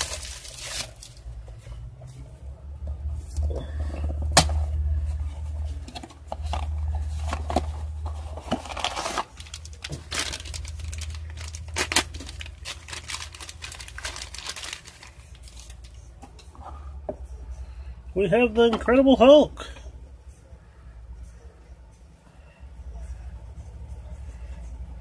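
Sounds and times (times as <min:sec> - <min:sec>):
plastic wrap tearing and crinkling: 0:00.0 - 0:01.2, 0:07.2 - 0:16.0.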